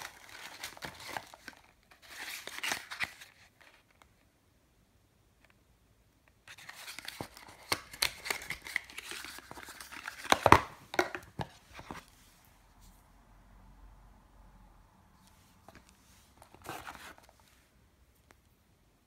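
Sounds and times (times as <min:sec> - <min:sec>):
tissue paper rustling: 0:00.0 - 0:03.8, 0:15.3 - 0:17.7.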